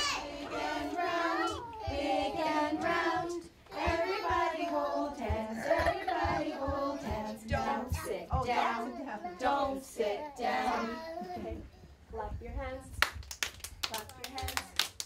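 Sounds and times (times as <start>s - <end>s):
children and adults singing: 0.0s - 11.7s.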